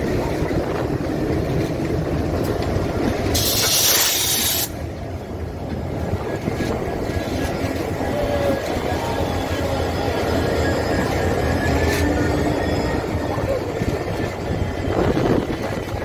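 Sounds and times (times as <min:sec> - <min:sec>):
diesel locomotive engine rumble: 0:00.0 - 0:16.0
wheels rolling on rail: 0:00.0 - 0:16.0
loud hiss: 0:03.3 - 0:04.8.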